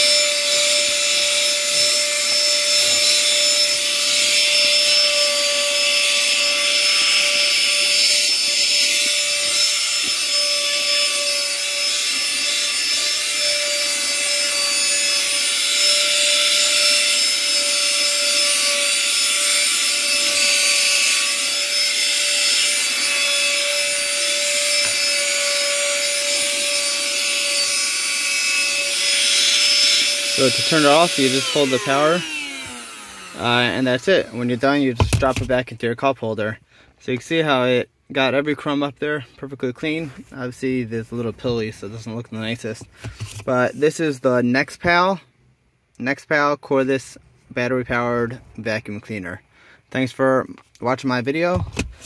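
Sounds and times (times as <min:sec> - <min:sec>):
handheld vacuum running: 0:00.0 - 0:35.6.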